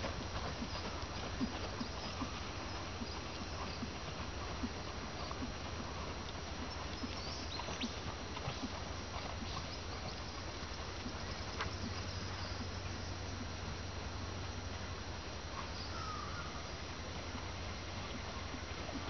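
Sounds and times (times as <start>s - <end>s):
horse hoofbeats on sand: 0.0s - 13.6s
steady hiss and hum: 0.0s - 19.0s.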